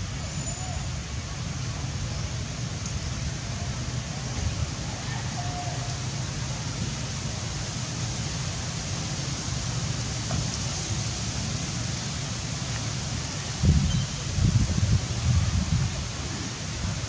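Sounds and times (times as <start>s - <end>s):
faint brief whistle: 0.2s - 0.9s
wind on microphone: 13.6s - 17.0s.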